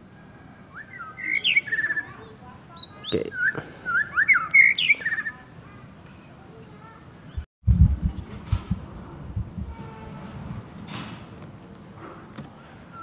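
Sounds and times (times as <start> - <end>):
songbird chirping and whistling: 0.4 - 5.5.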